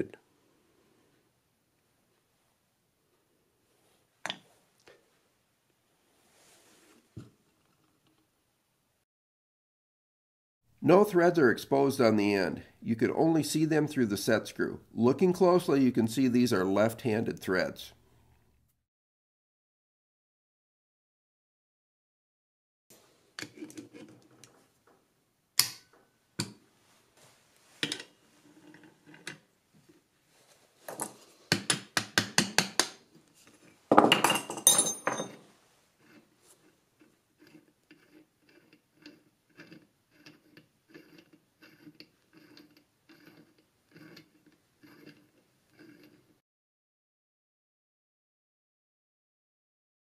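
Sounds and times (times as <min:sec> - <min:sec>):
metal tools clinking: 0:33.9 - 0:35.4.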